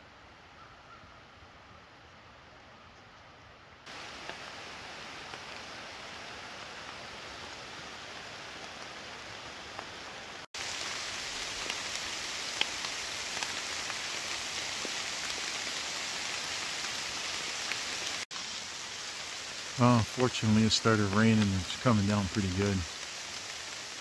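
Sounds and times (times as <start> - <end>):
rain falling on woods: 3.8 - 24.0
raindrop taps: 4.0 - 4.5.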